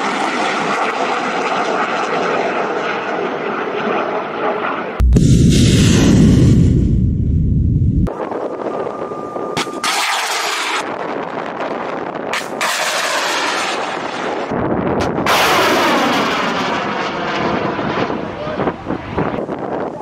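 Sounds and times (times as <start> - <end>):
outdoor noise: 2.8 - 17.7
missile launch blast: 5.0 - 8.1, 12.4 - 18.2
deep rocket motor rumble: 5.0 - 12.3.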